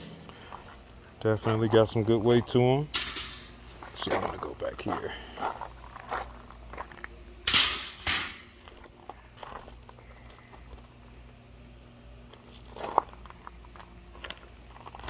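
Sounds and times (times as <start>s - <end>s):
metal grate clattering on gravel: 0.0s - 10.1s, 12.4s - 15.0s.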